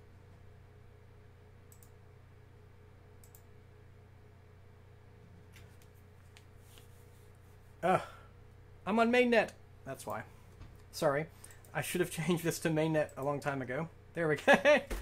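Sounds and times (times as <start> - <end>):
low steady hum: 0.0 - 15.0
computer mouse clicks: 1.7 - 2.0, 3.2 - 3.5.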